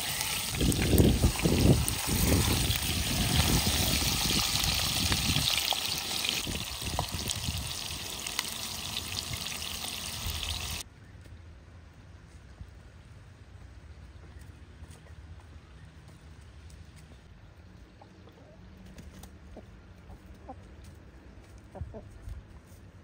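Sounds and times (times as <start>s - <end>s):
food sizzling in frying pan: 0.0s - 10.8s.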